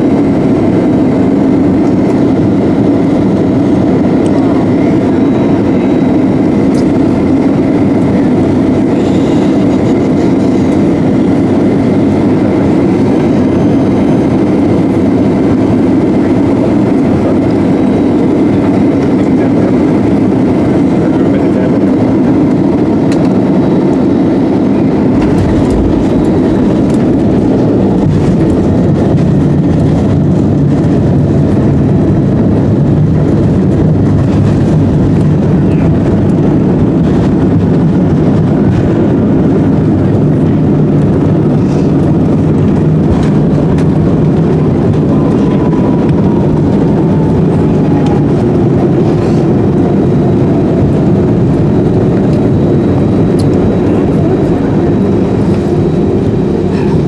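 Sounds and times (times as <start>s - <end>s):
airliner engines and airflow rumble: 0.0s - 57.0s
deep low rumble: 17.0s - 57.0s.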